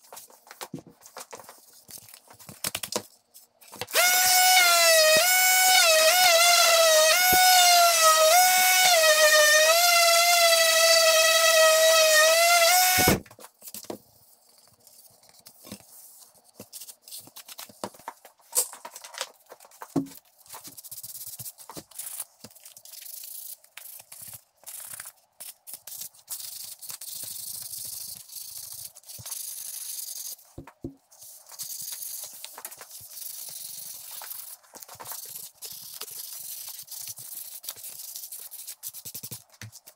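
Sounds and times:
orbital sander whine: 4.0s - 13.2s.

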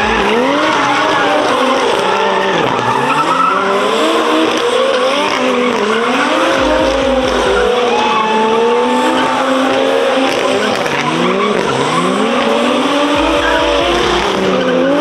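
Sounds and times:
tyres screeching: 0.0s - 9.4s
car engines at high revs: 0.0s - 15.0s.

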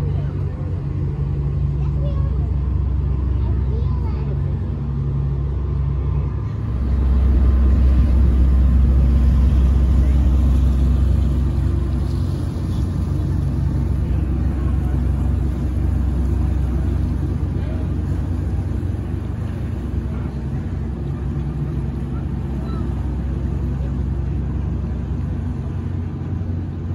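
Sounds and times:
ship engine rumble: 0.0s - 26.9s.

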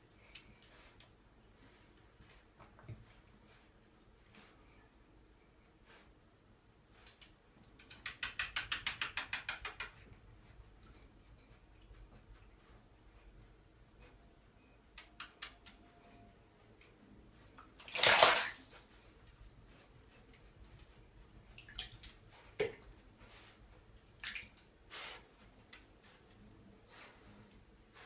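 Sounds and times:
bathwater splashing and sloshing: 17.4s - 19.8s, 21.4s - 25.2s
water dripping: 17.5s - 18.7s.

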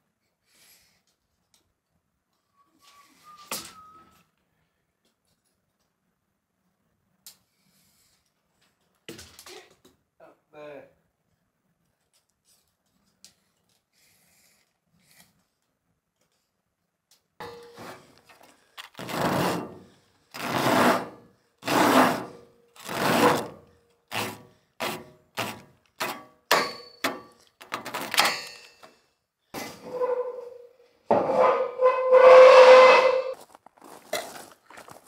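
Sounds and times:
handsaw sawing: 19.0s - 19.8s, 20.4s - 26.2s.

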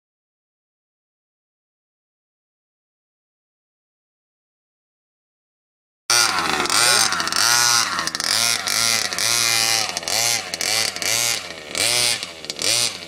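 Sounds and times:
engine revving in throttle bursts: 6.1s - 13.0s.

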